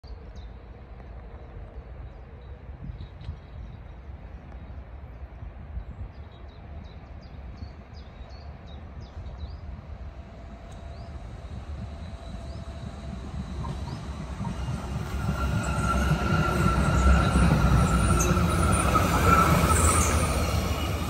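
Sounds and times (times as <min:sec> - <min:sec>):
light-rail car humming: 0:08.4 - 0:21.0.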